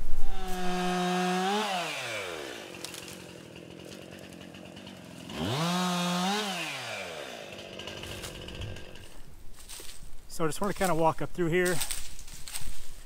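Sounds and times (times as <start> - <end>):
chainsaw engine idling and revving: 0.2 - 9.8.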